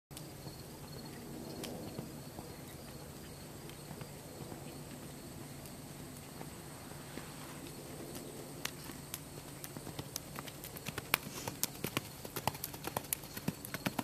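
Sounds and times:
hoofbeats on sand: 0:01.7 - 0:14.0.

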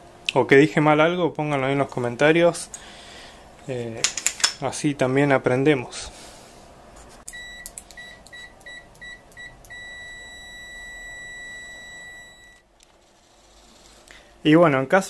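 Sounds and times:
multimeter beeps: 0:07.3 - 0:14.0.

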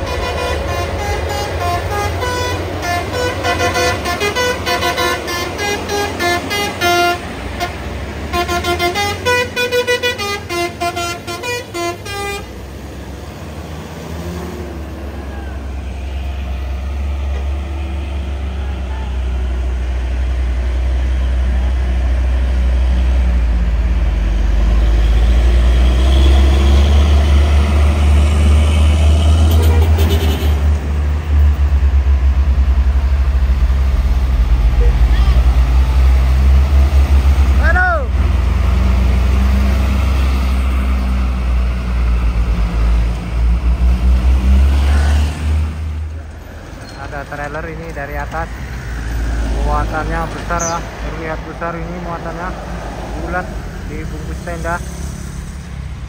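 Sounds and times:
multi-tone truck horn tune: 0:00.0 - 0:12.6, 0:28.4 - 0:30.8
diesel truck engine rumbling: 0:00.0 - 0:56.0.

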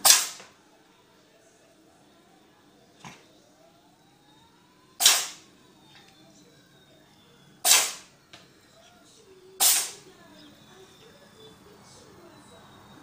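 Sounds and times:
cat sneezing: 0:05.0 - 0:05.4, 0:07.6 - 0:08.0, 0:09.6 - 0:10.0.

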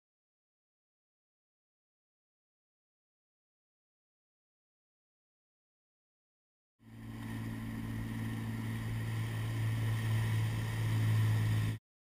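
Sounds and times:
motorboat engine running: 0:06.8 - 0:11.8.

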